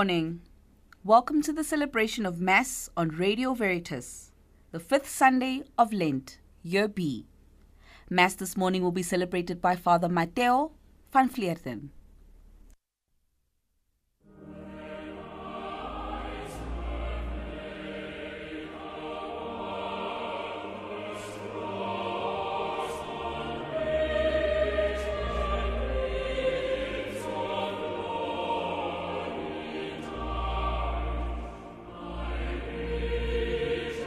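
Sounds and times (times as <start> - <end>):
choir singing: 14.3 - 34.0.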